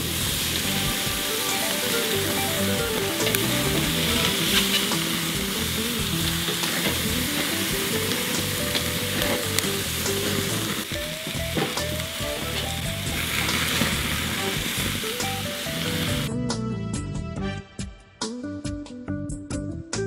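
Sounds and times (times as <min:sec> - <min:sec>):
chicken sizzling on a grill: 0:00.0 - 0:16.3
background music: 0:00.0 - 0:20.0.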